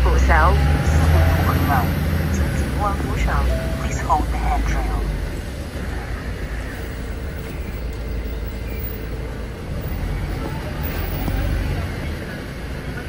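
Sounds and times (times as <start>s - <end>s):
bus engine and tyres rumbling: 0.0s - 13.0s.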